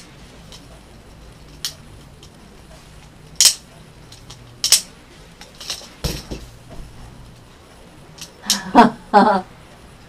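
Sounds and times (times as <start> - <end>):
knife handles clacking: 0.0 - 6.6, 8.2 - 8.6.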